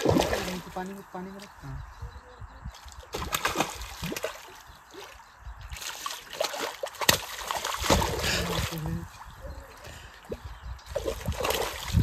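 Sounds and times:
fish splashing in water: 0:00.0 - 0:00.9, 0:02.8 - 0:09.0, 0:10.2 - 0:12.0.

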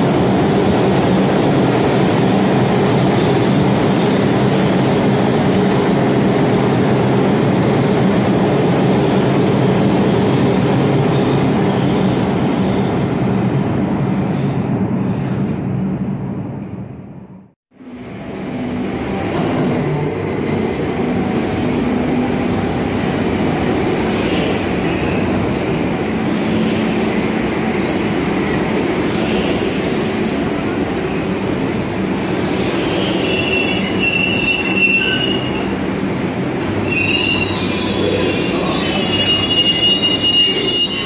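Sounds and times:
train wheels rumbling on rails: 0:18.5 - 0:41.0
high-pitched wheel squeals: 0:32.9 - 0:35.6, 0:36.8 - 0:41.0.

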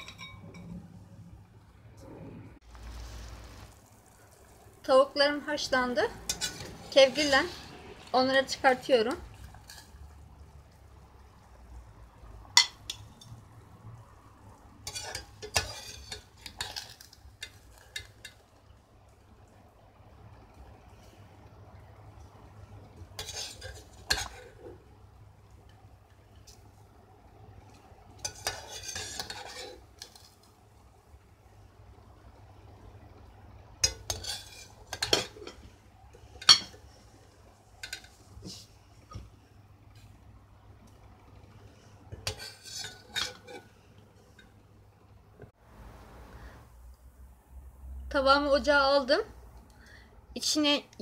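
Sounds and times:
metal skimmer clinking against pot: 0:00.0 - 0:00.8.

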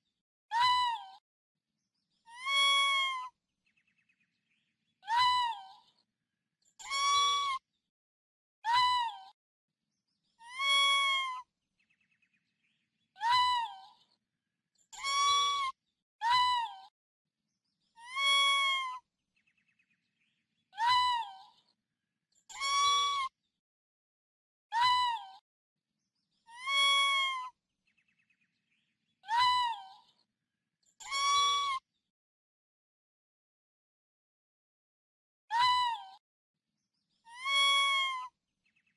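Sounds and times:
small mammal whining calls: 0:31.0 - 0:31.8.

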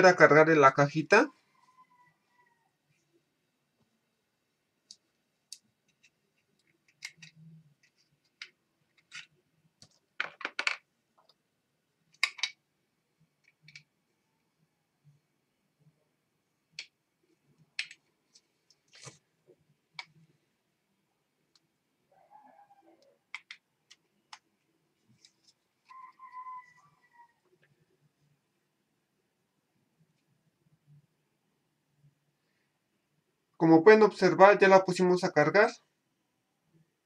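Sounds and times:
plastic earbuds clicking on hard bench: 0:23.3 - 0:24.5.

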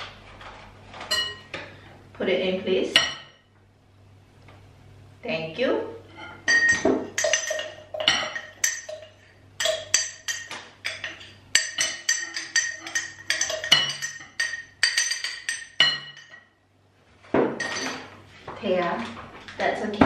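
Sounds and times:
whisk clinking against glass bowl: 0:06.5 - 0:16.5.

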